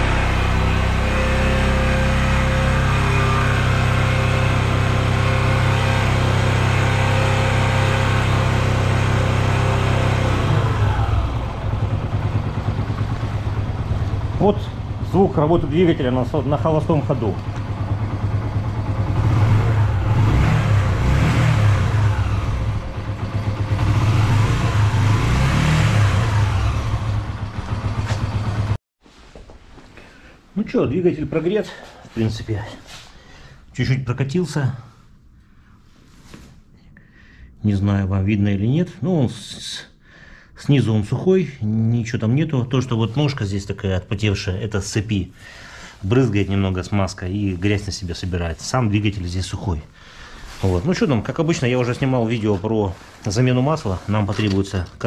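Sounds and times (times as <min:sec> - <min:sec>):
motorcycle engine idling: 0:08.4 - 0:28.8.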